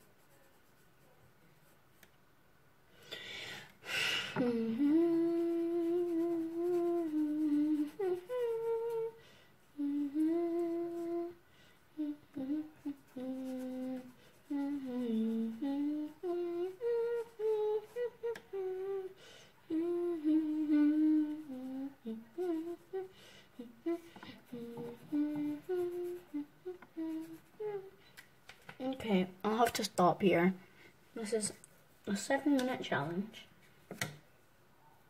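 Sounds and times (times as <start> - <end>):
person humming: 4.3 - 28.0.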